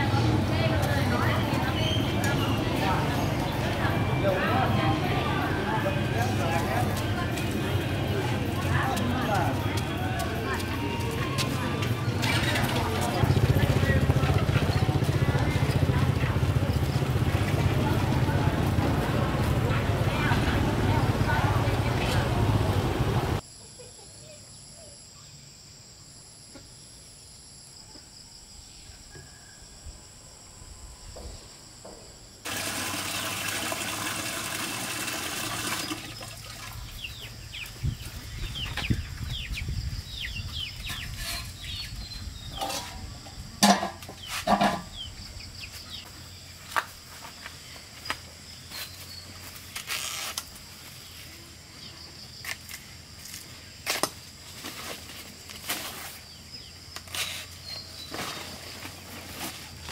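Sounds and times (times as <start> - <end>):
high insect drone: 23.4 - 38.4.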